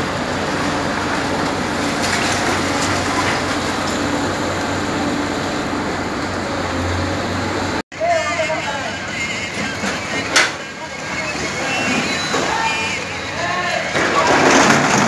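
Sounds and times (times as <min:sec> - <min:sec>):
excavator diesel engine: 0:00.0 - 0:15.0
rubble crumbling and falling: 0:13.8 - 0:15.0.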